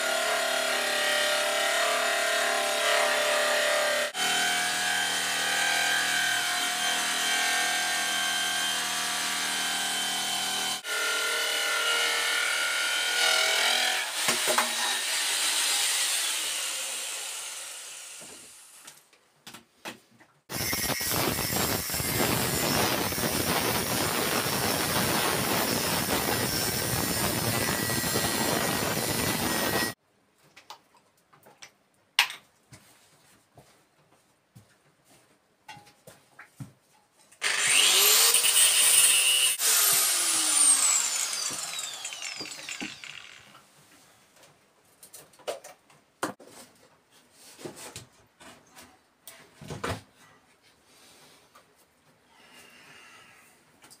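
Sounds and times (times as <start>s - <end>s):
jigsaw cutting wood: 0.0s - 18.8s, 20.5s - 30.0s, 37.4s - 43.6s.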